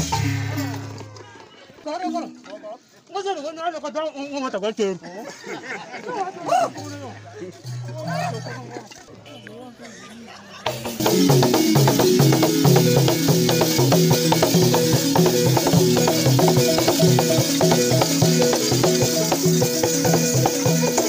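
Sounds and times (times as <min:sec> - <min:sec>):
wooden xylophone melody: 0:10.6 - 0:21.0
hand drum beat: 0:10.7 - 0:21.0.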